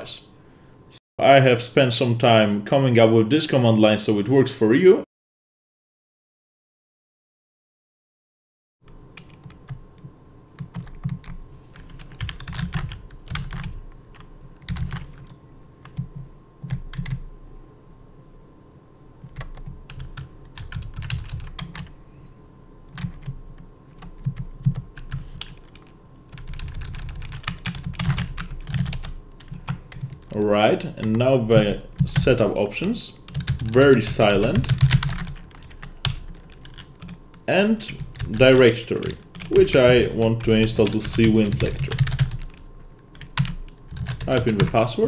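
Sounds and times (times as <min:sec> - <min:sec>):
faint steady hum: 0:00.0 - 0:05.0, 0:08.9 - 0:45.0
typing on keyboard: 0:10.6 - 0:17.2, 0:19.2 - 0:21.9, 0:22.9 - 0:30.3, 0:33.3 - 0:33.8, 0:34.5 - 0:37.2, 0:40.6 - 0:44.8.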